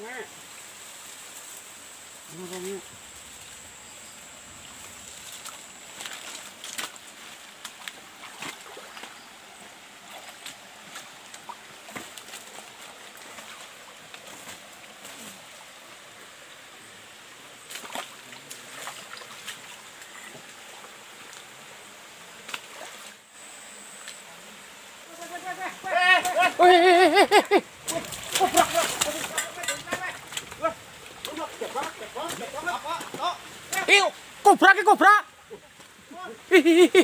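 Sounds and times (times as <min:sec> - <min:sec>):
bamboo leaves rustling: 0:00.0 - 0:37.0
stream running: 0:00.0 - 0:37.0.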